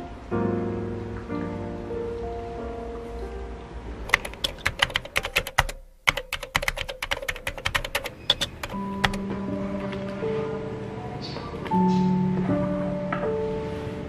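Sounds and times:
soft music: 0.0 - 14.0
typing on a laptop keyboard: 4.1 - 9.2.

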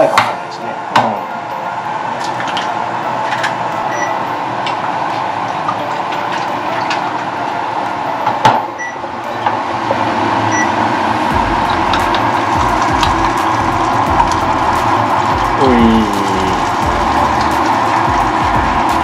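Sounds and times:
dumplings sizzling in a pan: 11.6 - 18.9.

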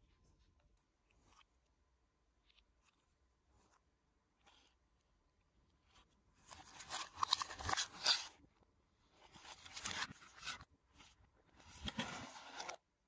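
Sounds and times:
plastic scraping against cardboard: 9.3 - 12.8.

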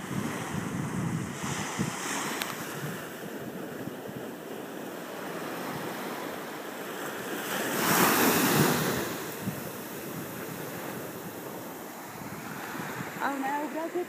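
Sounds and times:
small waves washing on sand: 0.0 - 14.0
wind buffeting microphone: 0.0 - 14.0.

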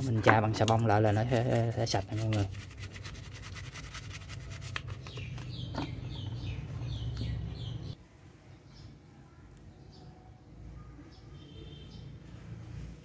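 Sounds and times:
brush scrubbing plastic in water: 0.0 - 5.3
small bird chirping: 4.9 - 8.0.

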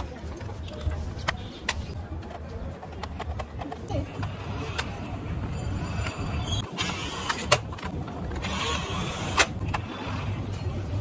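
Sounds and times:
toy car motor whirring: 8.4 - 10.3.

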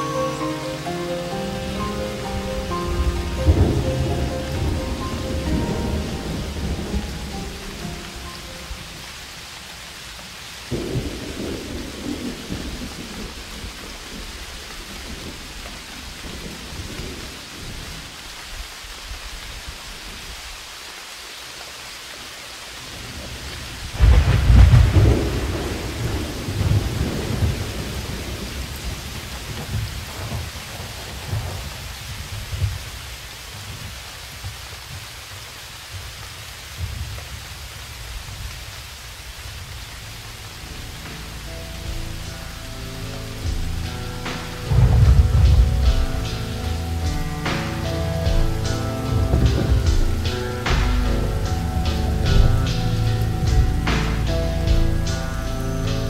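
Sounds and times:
rain hissing: 0.0 - 56.0
rolling thunder: 1.4 - 9.4, 10.6 - 18.1, 23.0 - 33.0, 43.4 - 55.1.

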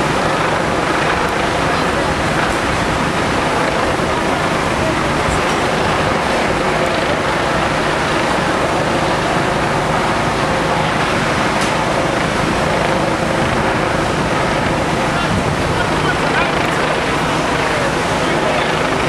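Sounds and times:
diesel engines running: 0.0 - 19.0.

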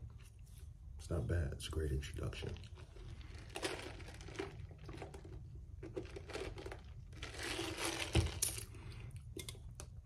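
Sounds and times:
plastic cup crinkling: 2.2 - 9.5
ice shifting in cup: 2.4 - 8.7.

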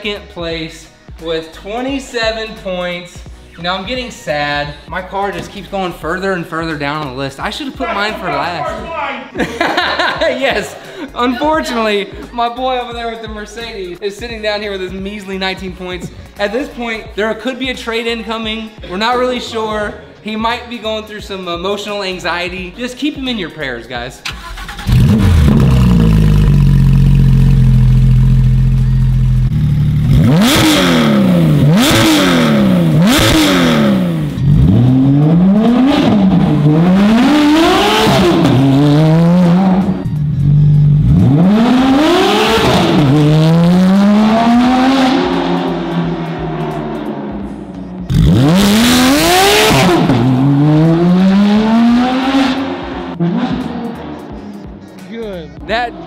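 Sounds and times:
sports car engine revving: 24.4 - 54.9.

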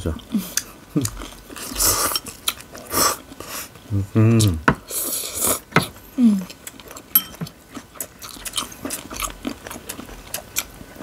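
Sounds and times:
crunchy chewing: 6.4 - 11.0.

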